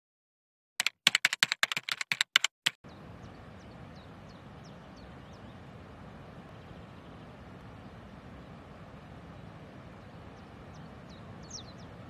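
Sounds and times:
keyboard typing clicks: 0.8 - 2.8
outdoor background noise: 2.8 - 12.0.

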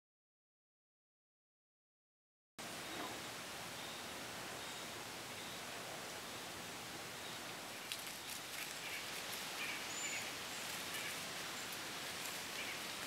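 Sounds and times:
steady hiss: 2.6 - 13.0
faint bird chirps: 2.8 - 11.8
dry leaves rustling and crackling: 7.6 - 13.0.

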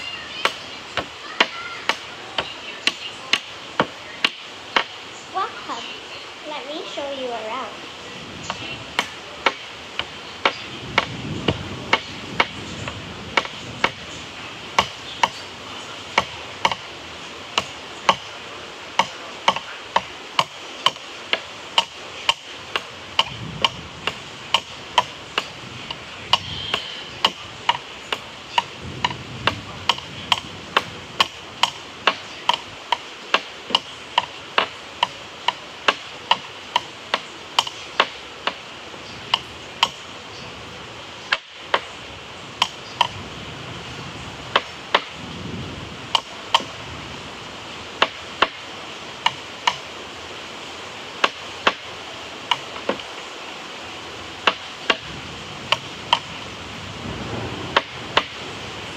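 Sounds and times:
faint hiss: 0.0 - 58.9
steady ticking: 16.1 - 18.3, 18.9 - 38.6.

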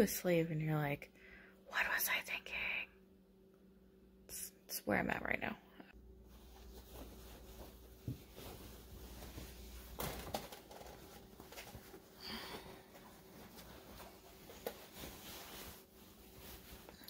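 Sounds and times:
low room hum: 0.0 - 17.0
cloth rustling: 6.2 - 17.0.

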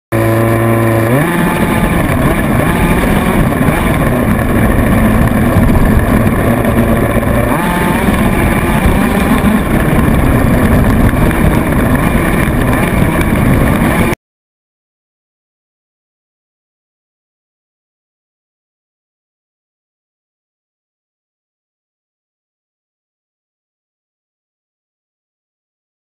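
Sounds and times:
chassis and tyres rattling: 0.2 - 14.2
toy buggy motor running: 0.4 - 14.2.

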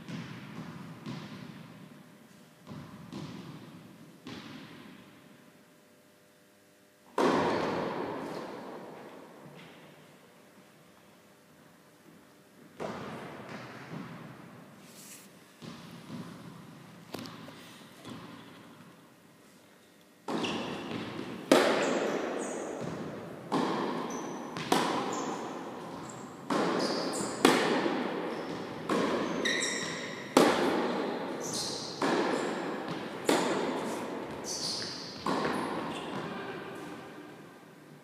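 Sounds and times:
tennis ball bouncing on court: 0.0 - 1.8, 2.6 - 5.1, 7.1 - 10.0, 12.8 - 14.4, 15.6 - 18.9, 20.2 - 36.9
tennis ball struck with rackets: 0.0 - 1.8, 2.6 - 5.0, 7.1 - 10.0, 12.8 - 14.3, 15.6 - 18.9, 20.2 - 37.0.

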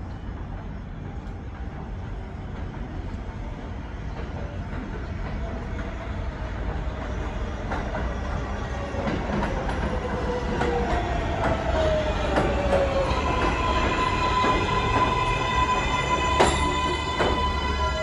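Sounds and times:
subway train rumbling: 0.0 - 18.0
train braking whine: 10.6 - 18.0.

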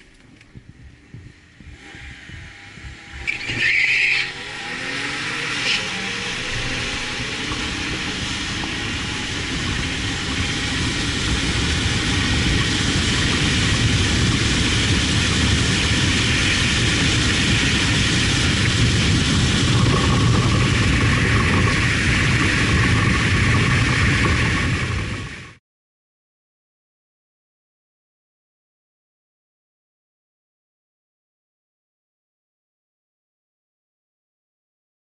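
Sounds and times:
car engine accelerating: 0.0 - 25.6
road noise: 0.0 - 25.6
wind noise: 0.0 - 25.6.

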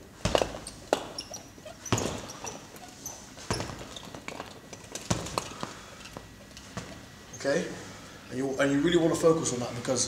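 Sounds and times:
punches thudding on punching bag: 0.2 - 1.2, 1.8 - 2.5, 3.4 - 4.0, 5.0 - 5.5.

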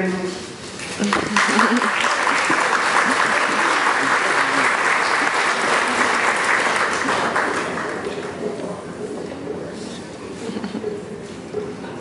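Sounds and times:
congregation applauding: 0.9 - 8.4.

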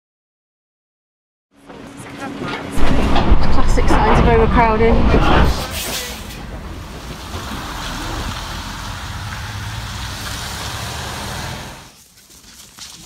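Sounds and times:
lorry engine hum: 1.6 - 12.0.

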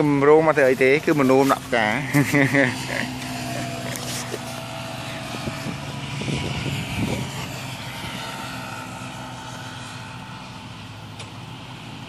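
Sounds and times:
brushing and rustling: 0.0 - 6.0
small engine humming: 0.0 - 12.0.

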